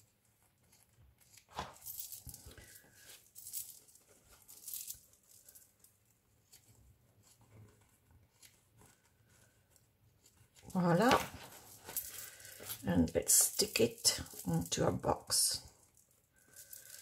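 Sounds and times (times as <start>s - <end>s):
paper rustling: 0.0s - 12.8s.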